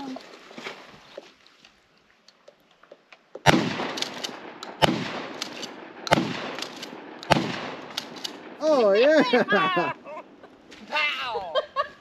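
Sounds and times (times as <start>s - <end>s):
gunshots with echo: 3.4s - 8.6s.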